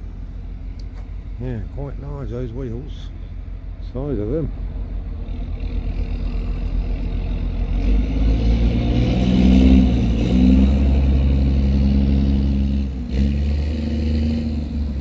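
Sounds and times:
heavy vehicle engine revving: 0:04.5 - 0:15.0.

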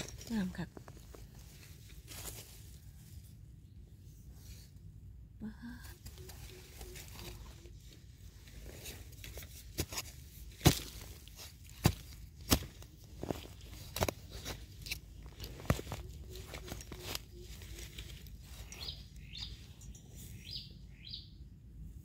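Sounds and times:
rustling and scraping in soil: 0:00.0 - 0:05.3, 0:05.9 - 0:21.0
sharp crunching snaps and knocks: 0:08.9 - 0:17.2.

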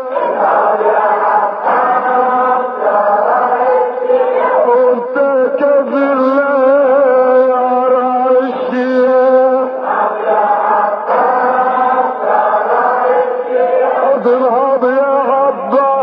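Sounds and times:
man chanting a lament: 0:03.9 - 0:09.9, 0:13.9 - 0:16.0.

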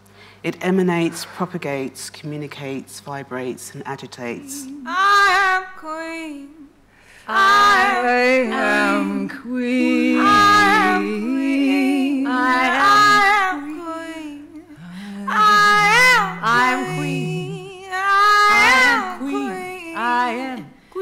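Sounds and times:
women singing held notes: 0:04.4 - 0:21.0.

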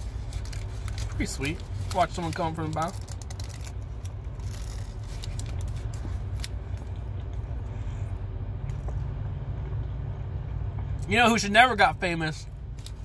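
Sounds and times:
paper wrapper crinkling: 0:00.0 - 0:07.1
chewing a sandwich: 0:00.0 - 0:09.8
low rumble inside a car: 0:00.0 - 0:13.0.

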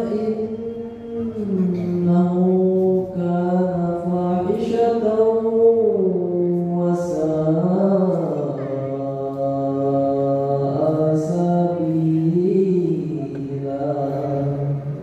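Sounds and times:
man chanting melodic recitation: 0:00.0 - 0:15.0.

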